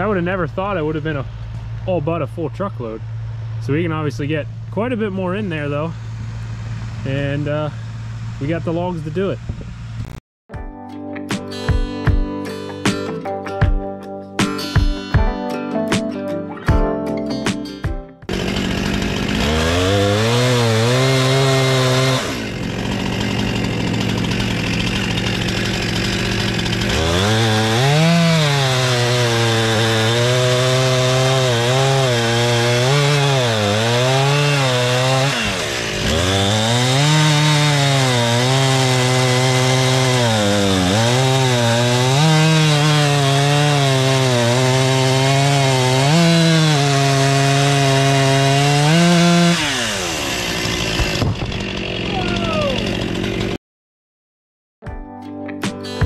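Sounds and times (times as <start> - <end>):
chainsaw cutting logs: 18.2 - 53.6.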